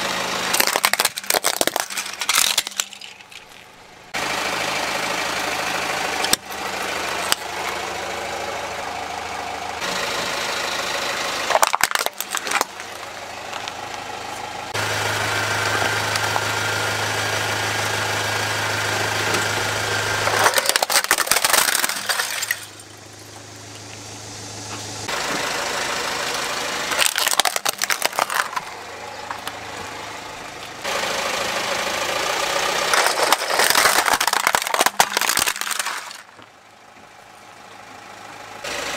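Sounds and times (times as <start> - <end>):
car engine idling: 0.0 - 38.9
plastic toys cracking and crunching: 0.5 - 3.8, 11.4 - 14.0, 20.2 - 22.9, 26.9 - 29.6, 32.9 - 36.5.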